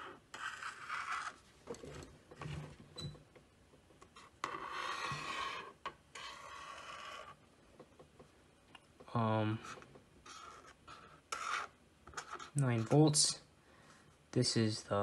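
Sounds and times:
marker scratching on paper: 0.0s - 1.4s, 4.1s - 7.4s, 9.6s - 13.0s.

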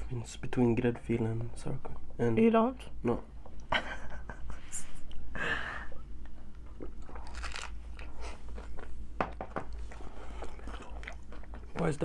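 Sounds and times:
crunchy taco chewing: 6.6s - 9.0s.

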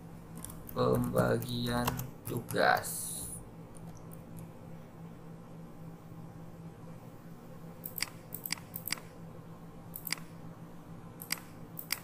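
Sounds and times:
low steady hum: 0.0s - 12.0s
computer mouse clicking: 7.8s - 9.1s, 9.9s - 10.3s, 11.2s - 12.0s.

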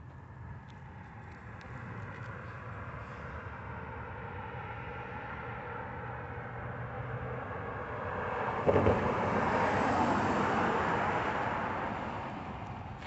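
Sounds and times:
vehicle driving past: 3.0s - 13.0s
thump: 8.6s - 9.2s.

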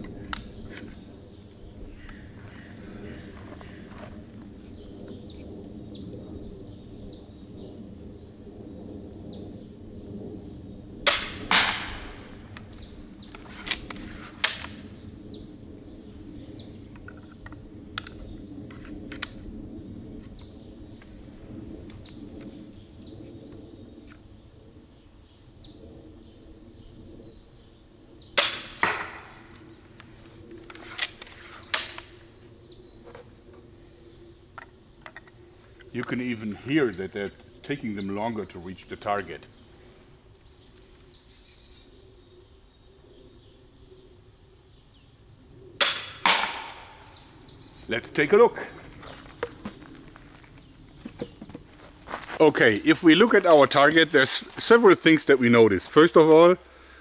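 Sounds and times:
songbirds chirping: 0.0s - 57.0s
bolt striking target: 11.1s - 12.0s, 45.8s - 47.0s.

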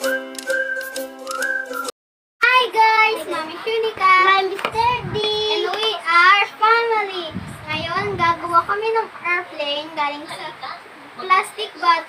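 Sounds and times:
girl singing: 2.4s - 10.5s.

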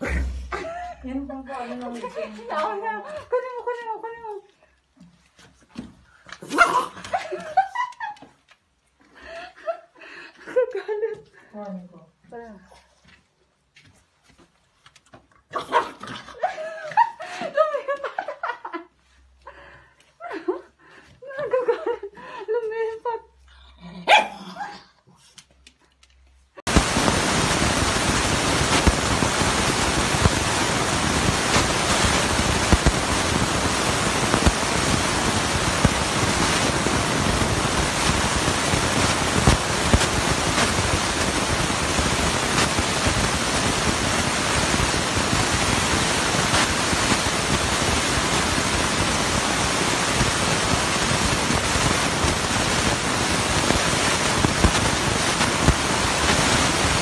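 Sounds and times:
steady loud hiss: 26.7s - 57.0s.

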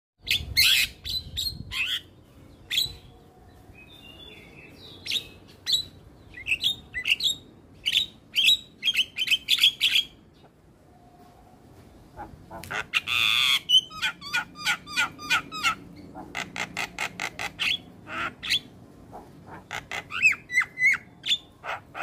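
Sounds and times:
bird chattering calls: 12.2s - 22.0s.

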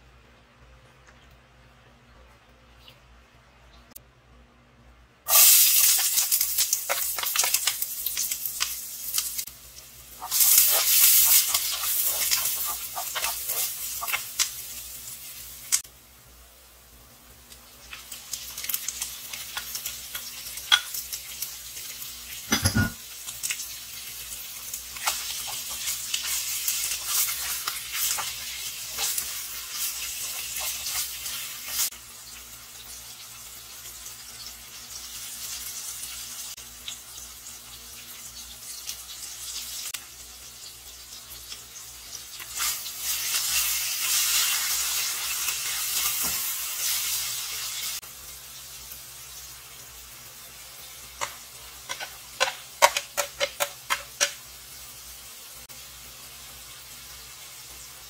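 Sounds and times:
meat and onion sizzling in pan: 5.3s - 58.0s
spatula scraping pan: 51.2s - 54.4s.

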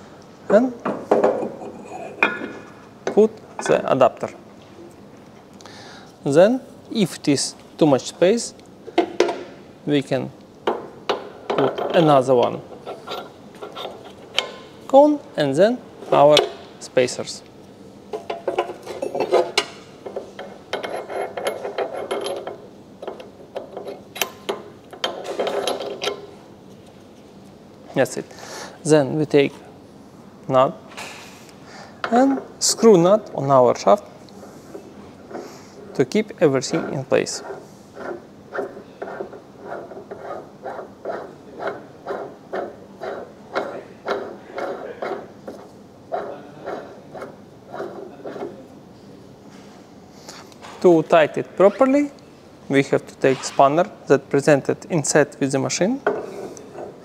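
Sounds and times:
metal scraping on shaft: 11.5s - 14.5s, 20.7s - 22.6s, 35.3s - 48.6s.

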